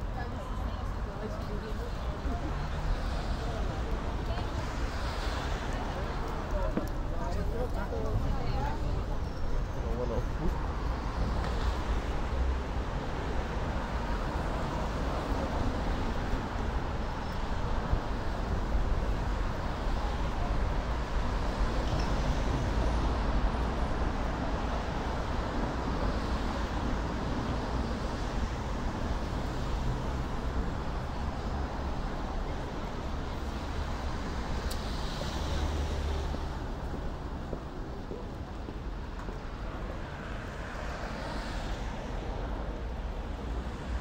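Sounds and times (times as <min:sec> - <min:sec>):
steady road traffic: 0:00.0 - 0:44.0.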